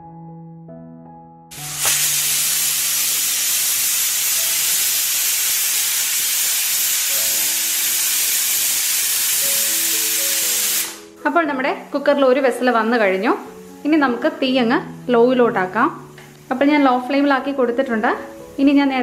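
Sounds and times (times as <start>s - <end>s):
soft background music: 0.0s - 19.0s
pressure cooker steam hissing: 1.5s - 11.1s.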